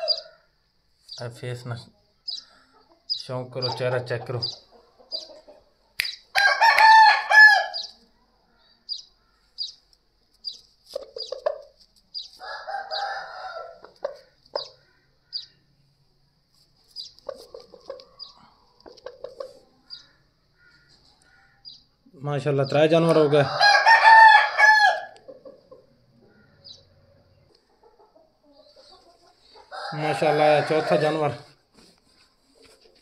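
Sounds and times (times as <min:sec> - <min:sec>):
fowl clucking and calling: 0:00.0 - 0:00.4, 0:02.3 - 0:07.9, 0:23.1 - 0:31.2
rooster crowing: 0:00.0 - 0:00.5, 0:06.3 - 0:07.9, 0:12.4 - 0:13.8, 0:23.2 - 0:25.2, 0:29.7 - 0:31.4.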